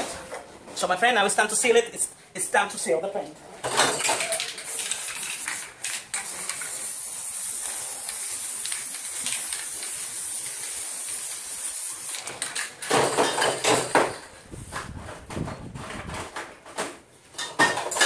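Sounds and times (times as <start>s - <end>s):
loud knocks and clatters: 3.6s - 4.3s, 12.4s - 18.0s
aerosol spray can hissing: 4.3s - 12.3s.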